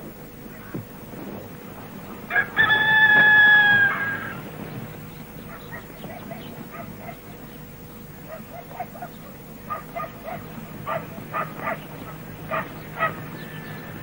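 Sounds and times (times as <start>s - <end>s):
rooster crowing: 2.3s - 4.5s.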